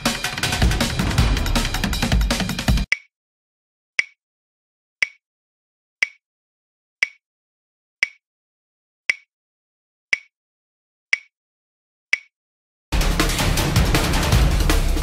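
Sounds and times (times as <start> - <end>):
background music with drums: 0.0 - 2.9, 13.0 - 15.0
countdown timer ticks: 0.0 - 3.1, 4.0 - 4.2, 5.0 - 5.2, 9.1 - 9.3, 10.1 - 10.3, 11.1 - 11.3, 12.1 - 12.3.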